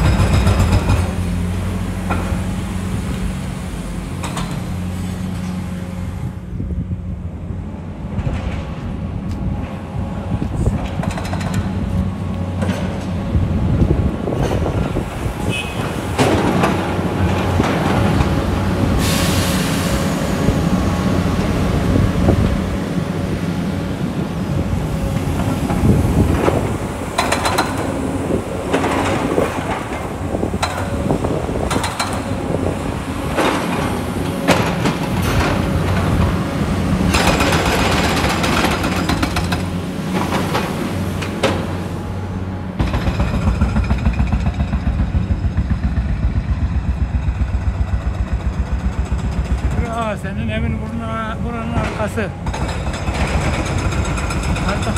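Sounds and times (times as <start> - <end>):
machine knocks and clatter: 0.0 - 1.4, 10.7 - 11.9, 12.5 - 13.2, 13.8 - 18.5, 25.2 - 28.0, 31.6 - 32.6, 33.2 - 36.4, 37.1 - 41.8, 42.8 - 54.9
excavator diesel engines droning: 0.0 - 54.9.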